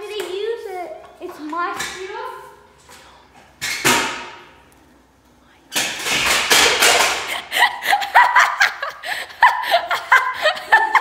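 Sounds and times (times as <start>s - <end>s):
scooter crashing on concrete: 5.8s - 7.5s
people laughing: 6.9s - 11.0s.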